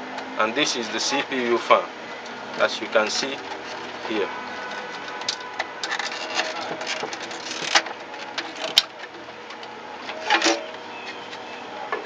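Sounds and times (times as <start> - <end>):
clicks and knocks handling parts: 4.6 - 12.0.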